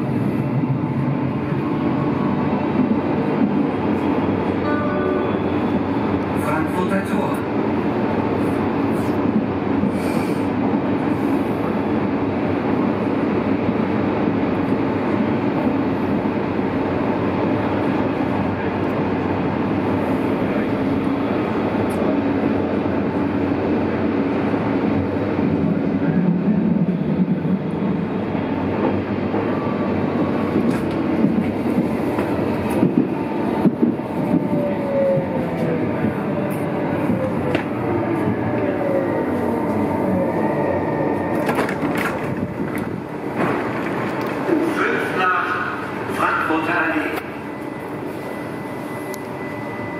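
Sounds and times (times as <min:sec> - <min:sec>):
train wheels rumbling on track: 0:00.0 - 0:49.9
rail-joint clicks: 0:30.5 - 0:34.5, 0:41.3 - 0:44.7.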